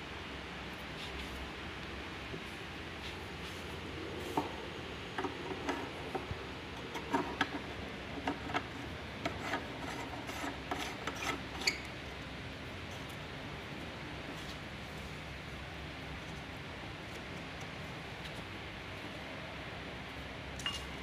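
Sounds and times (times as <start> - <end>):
metal pipe fitting scraping threads: 8.2 - 11.9.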